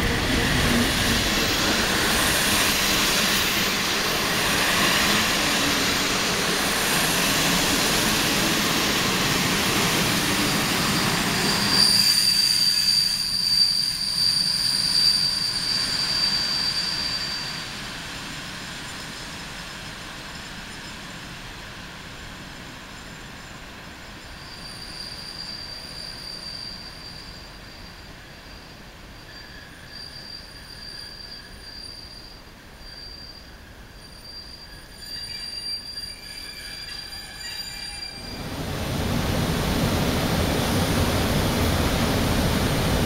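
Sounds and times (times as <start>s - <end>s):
train rumble: 0.0s - 12.1s, 36.8s - 43.0s
train wheels squealing: 0.0s - 38.6s.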